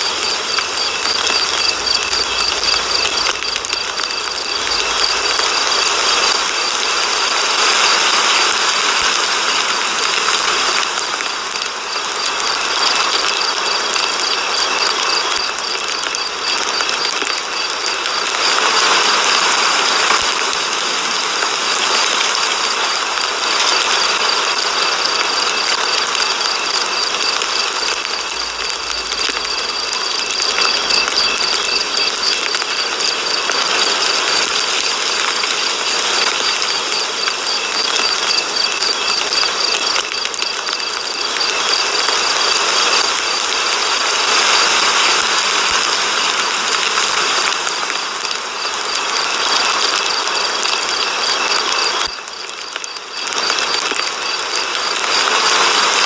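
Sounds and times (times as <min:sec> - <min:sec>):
rapid mechanical ticking: 0:00.0 - 0:44.2.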